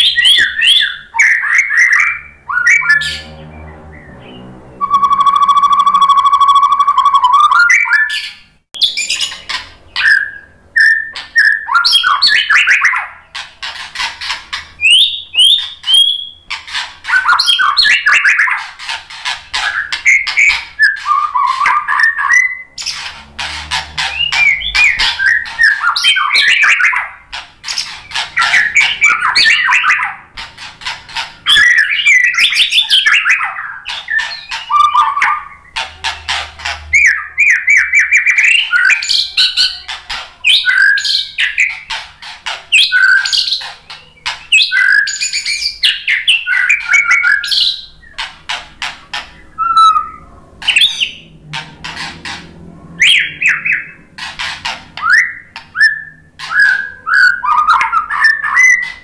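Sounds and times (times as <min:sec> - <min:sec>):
bird singing whistled phrases: 0:00.0 - 0:03.2, 0:04.2 - 0:09.4, 0:10.0 - 0:13.1, 0:14.8 - 0:16.4, 0:17.1 - 0:18.6, 0:19.7 - 0:22.9, 0:24.1 - 0:27.1, 0:31.5 - 0:35.7, 0:42.8 - 0:48.0, 0:49.5 - 0:51.2, 0:55.0 - 0:59.0.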